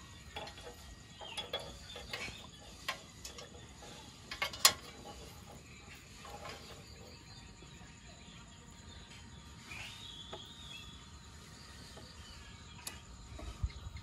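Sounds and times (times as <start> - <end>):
metal tongs clicking and scraping: 0.3 - 5.6.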